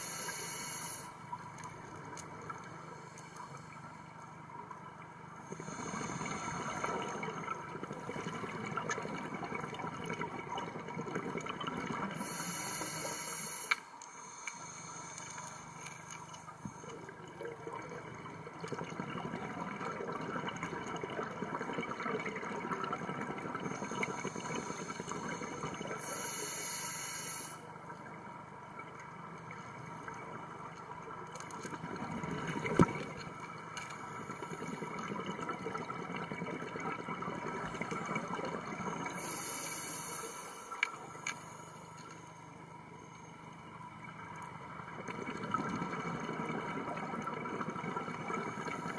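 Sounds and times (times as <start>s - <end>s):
high hiss: 0.0s - 1.2s, 12.2s - 13.9s, 26.0s - 27.7s, 39.1s - 40.8s
underwater bubbling of exhaled air: 4.5s - 13.6s, 16.2s - 41.3s, 44.0s - 48.9s.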